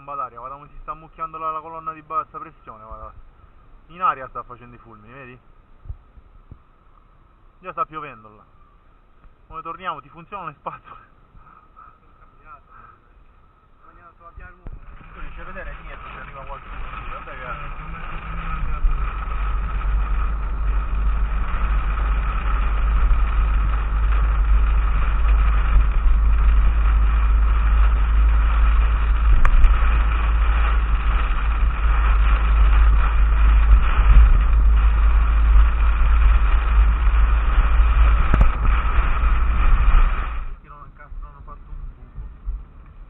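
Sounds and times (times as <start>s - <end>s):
car running noise: 0.0s - 43.0s
heavy rain on car roof: 14.8s - 40.6s.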